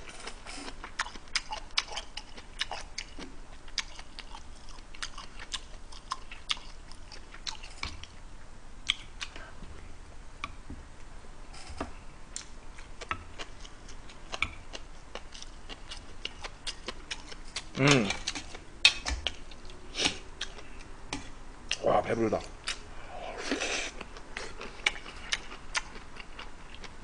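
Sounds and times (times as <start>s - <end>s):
person chewing food: 0.0s - 8.2s, 12.3s - 21.8s, 22.6s - 27.0s.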